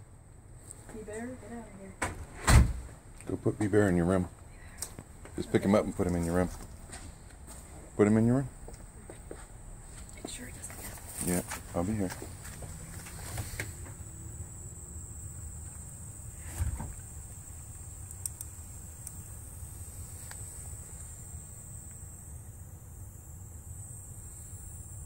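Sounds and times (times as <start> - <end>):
high-pitched hiss: 0.6 - 25.0
sharp thump: 2.0 - 2.9, 16.4 - 17.0
faint clicks: 18.0 - 19.2.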